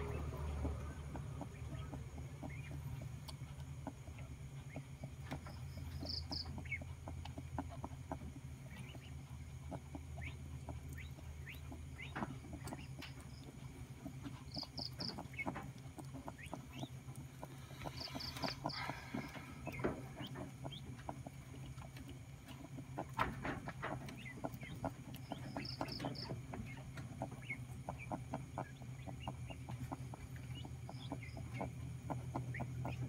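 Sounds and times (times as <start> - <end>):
rabbit licking wet clicks: 0.0 - 23.3
low steady hum: 0.0 - 33.0.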